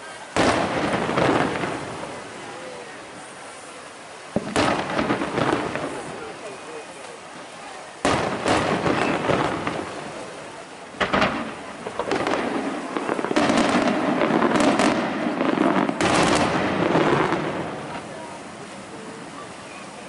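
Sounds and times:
firework shells bursting: 8.0s - 10.4s, 11.0s - 18.1s.

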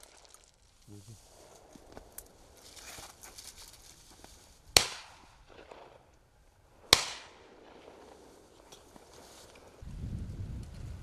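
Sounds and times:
shotgun shots with echo: 4.8s - 6.0s, 6.9s - 8.2s.

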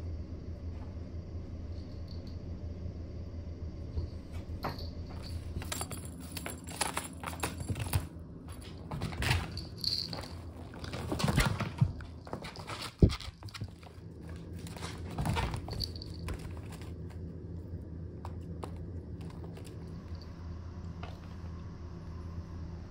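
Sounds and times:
steady low hum: 0.0s - 22.9s
wand toy rattling on mats: 4.6s - 17.1s
kitten paws scampering: 4.7s - 17.5s, 18.2s - 20.3s.

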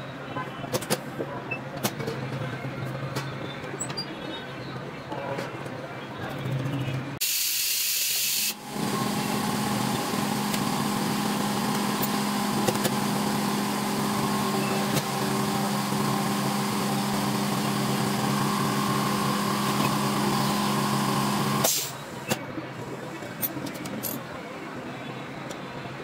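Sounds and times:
loud hiss: 7.2s - 8.6s.

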